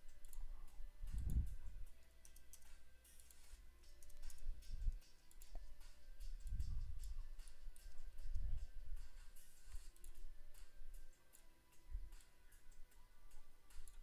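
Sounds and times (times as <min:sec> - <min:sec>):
computer mouse clicks: 0:00.0 - 0:11.5, 0:13.7 - 0:14.0
faint steady hum: 0:00.0 - 0:14.0.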